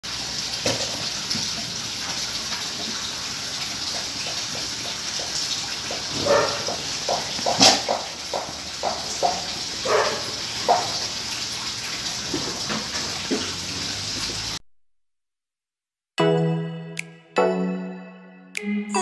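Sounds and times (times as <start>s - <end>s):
dog gnawing and licking: 5.9s - 10.9s.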